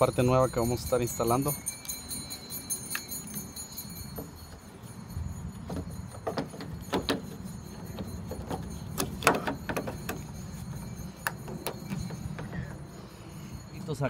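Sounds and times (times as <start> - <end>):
door handle clicks and knocks: 5.7 - 7.4.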